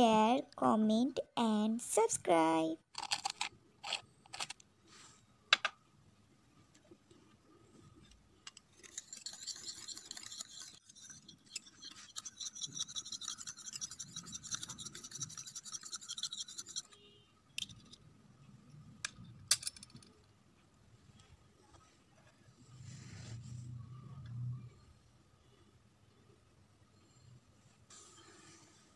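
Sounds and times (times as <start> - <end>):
whisk scraping in bowl: 8.8 - 16.9.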